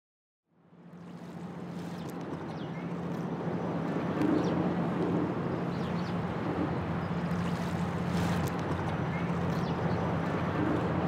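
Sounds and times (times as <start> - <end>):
low engine drone: 0.5 - 11.0
outdoor ambient noise: 0.5 - 11.0.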